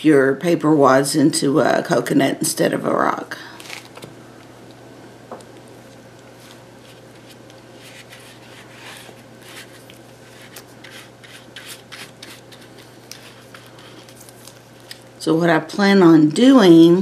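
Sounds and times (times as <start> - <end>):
steady low hum: 0.0 - 17.0
paintbrush brushing: 5.8 - 15.1.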